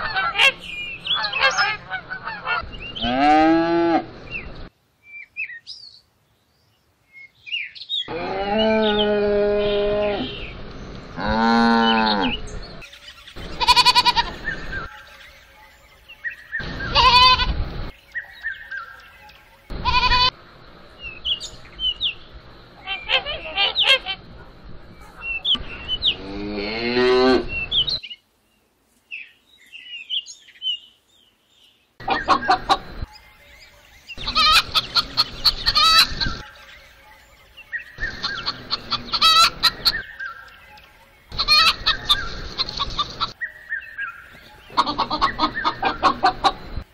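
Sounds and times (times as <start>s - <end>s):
chickens clucking: 0.0s - 3.2s, 32.0s - 33.1s, 34.2s - 36.6s, 37.8s - 43.4s, 44.3s - 46.9s
cattle mooing: 8.1s - 10.4s, 11.2s - 12.4s, 26.2s - 27.5s
high-pitched livestock calls: 13.6s - 14.4s, 16.8s - 17.6s, 19.8s - 20.4s, 34.2s - 36.4s, 38.0s - 40.0s, 41.4s - 42.2s.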